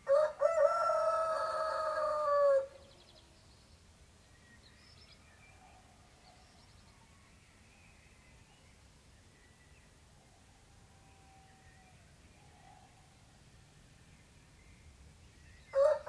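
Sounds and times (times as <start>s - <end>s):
rooster crowing: 0.1s - 2.7s, 15.8s - 16.0s.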